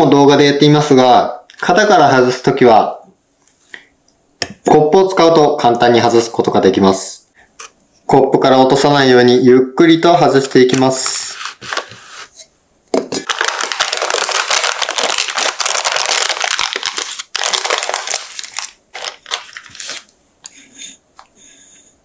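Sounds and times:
baking parchment crinkling and tearing: 0:13.2 - 0:20.1.

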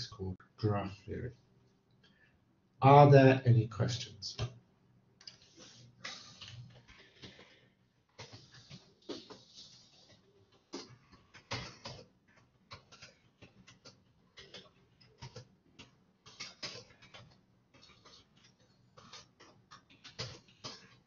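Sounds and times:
faint irregular clicks and taps: 0:05.2 - 0:21.0.

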